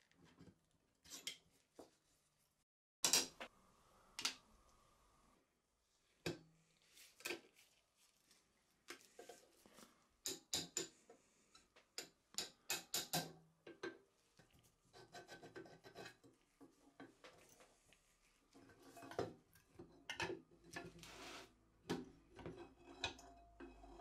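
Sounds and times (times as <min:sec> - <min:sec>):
faint metal scraping and rubbing: 0:14.8 - 0:20.0, 0:20.6 - 0:21.6, 0:22.4 - 0:24.0.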